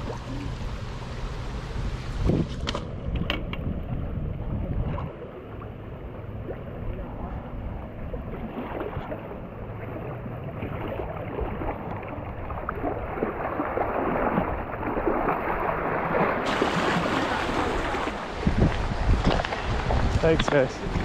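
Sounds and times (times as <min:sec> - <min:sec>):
river water rushing and splashing: 0:08.2 - 0:21.0.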